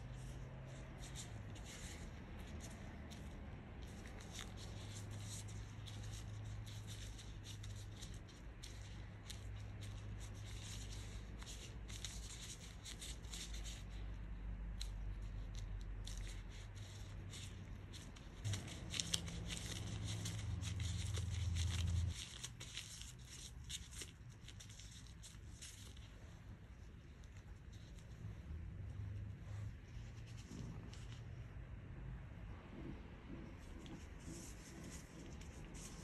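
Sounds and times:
plastic gloves crinkling: 0:14.8 - 0:28.2.

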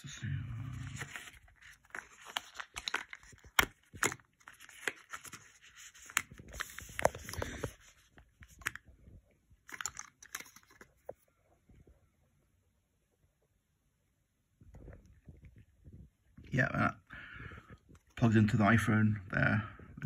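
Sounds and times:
paper and cardboard rustling: 0:00.7 - 0:08.8, 0:09.7 - 0:11.2.

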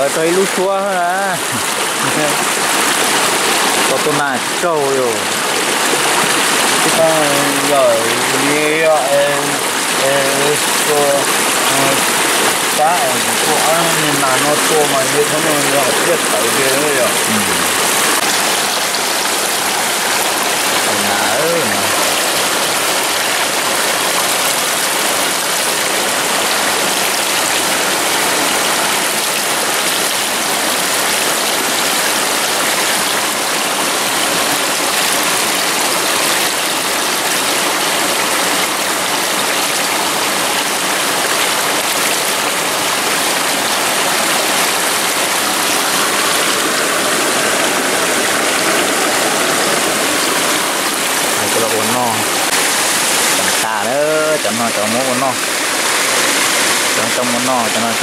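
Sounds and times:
water pouring into pool: 0:00.0 - 0:58.0.

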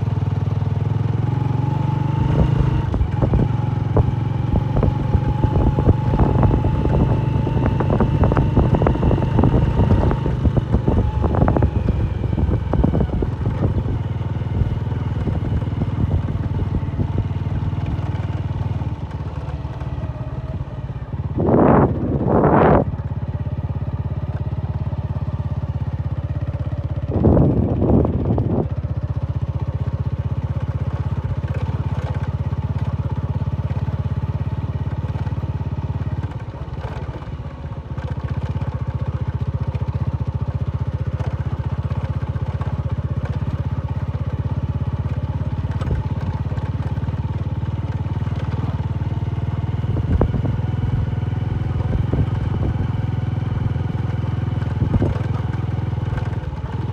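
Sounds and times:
motorcycle engine running: 0:00.0 - 0:56.9.

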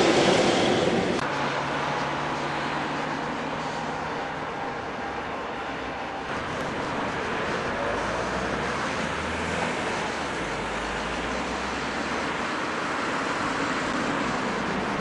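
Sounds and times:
low train rumble: 0:00.0 - 0:11.9
train wheels on rails: 0:00.0 - 0:15.0.

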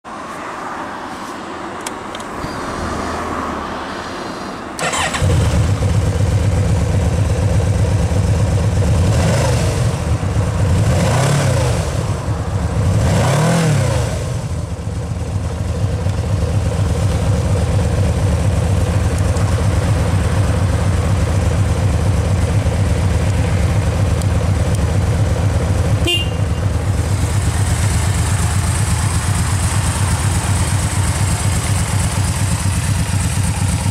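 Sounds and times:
engine revving: 0:04.8 - 0:06.4, 0:08.9 - 0:14.6
motorcycle engine idling: 0:04.8 - 0:09.1, 0:14.4 - 0:33.9.

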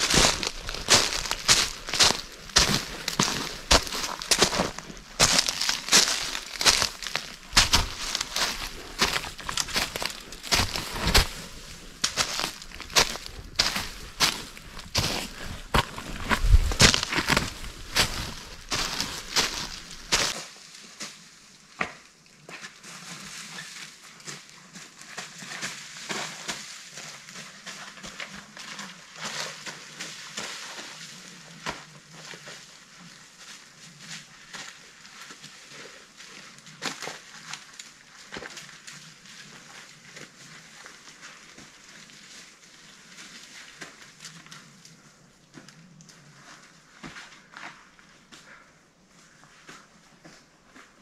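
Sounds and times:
footsteps crunching through leaf litter: 0:00.0 - 0:21.2.

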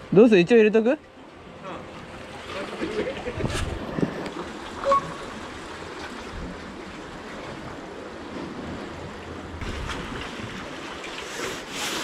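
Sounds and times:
sea waves among concrete blocks: 0:00.0 - 0:12.0
wind on microphone: 0:03.2 - 0:05.2.

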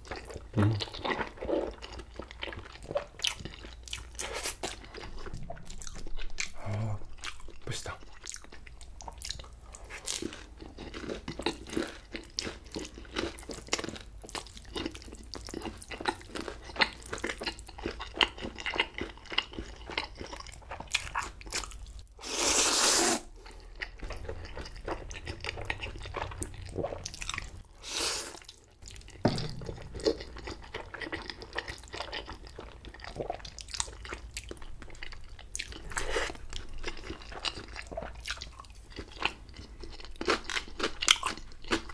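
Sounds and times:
chewing food: 0:00.0 - 0:22.1, 0:23.3 - 0:41.9
slurping noodles: 0:22.2 - 0:23.3, 0:24.1 - 0:28.6.

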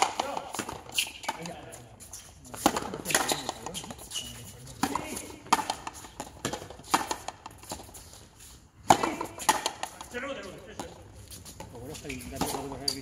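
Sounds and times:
rubber ball struck by rackets: 0:08.9 - 0:10.0.

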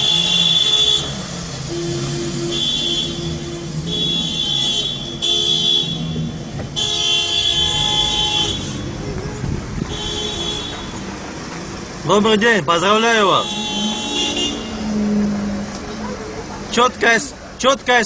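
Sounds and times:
car horns honking: 0:00.0 - 0:17.3.

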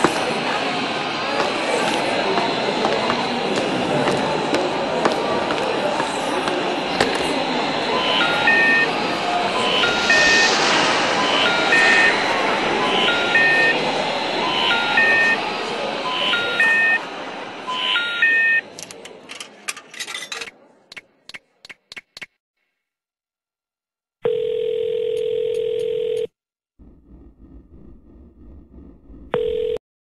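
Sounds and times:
street voices: 0:00.0 - 0:22.1
electronic beep tune: 0:08.0 - 0:08.9, 0:09.6 - 0:13.8, 0:14.4 - 0:15.4
telephone ringing tone: 0:24.2 - 0:26.3, 0:29.4 - 0:29.8.

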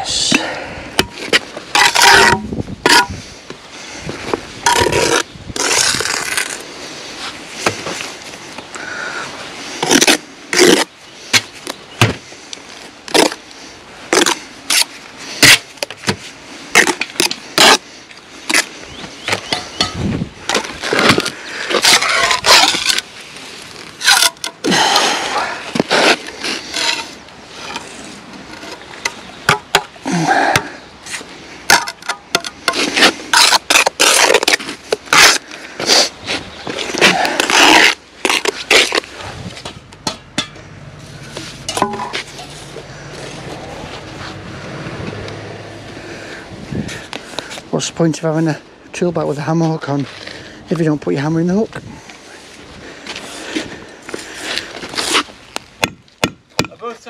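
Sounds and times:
trowel scraping mortar: 0:04.6 - 0:06.6, 0:19.4 - 0:23.0, 0:24.0 - 0:28.8, 0:31.1 - 0:39.1, 0:54.3 - 0:55.3.

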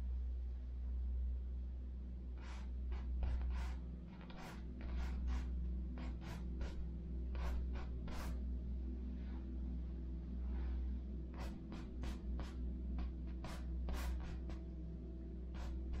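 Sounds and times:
steady low hum: 0:00.0 - 0:16.0
paintbrush swishing on canvas: 0:02.4 - 0:08.4, 0:10.5 - 0:14.6, 0:15.5 - 0:16.0.

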